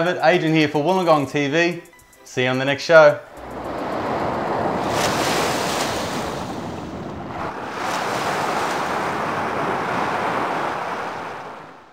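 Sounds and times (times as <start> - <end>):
waves washing onto beach: 3.3 - 11.9.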